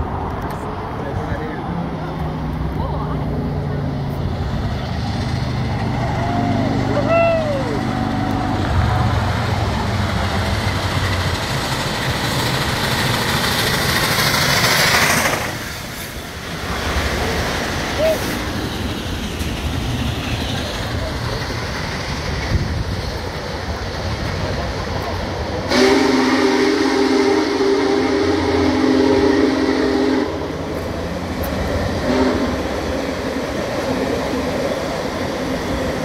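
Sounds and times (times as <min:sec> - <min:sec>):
steam train passing: 0:00.0 - 0:36.0
train horn chord: 0:25.7 - 0:30.5, 0:32.0 - 0:32.6.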